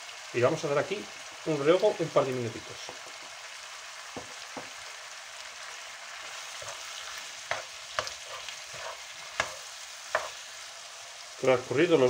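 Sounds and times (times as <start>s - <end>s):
food sizzling in frying pan: 0.0s - 12.0s
wooden spoon scraping pan: 6.3s - 10.5s.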